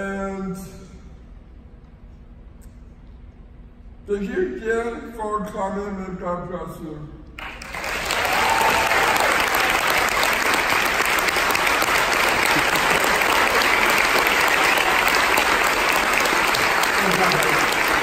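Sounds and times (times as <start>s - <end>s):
large audience applauding: 7.4s - 18.0s.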